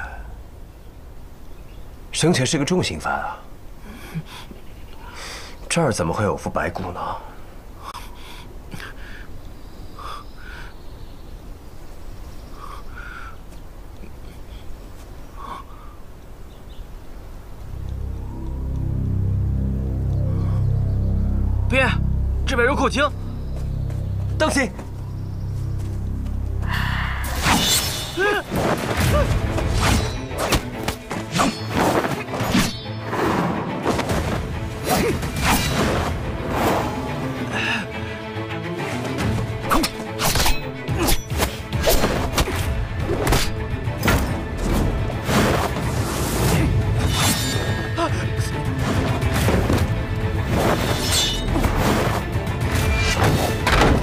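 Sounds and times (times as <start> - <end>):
bird paired calls: 7.8 - 18.8
dramatic music score: 17.4 - 54.0.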